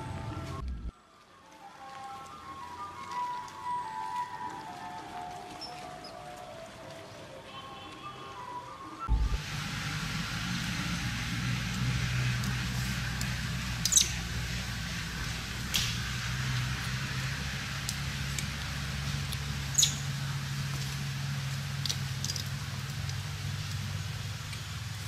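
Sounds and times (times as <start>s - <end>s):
steady low hum: 9.1s - 25.0s
macaques squeaking: 13.8s - 14.4s, 19.6s - 20.3s.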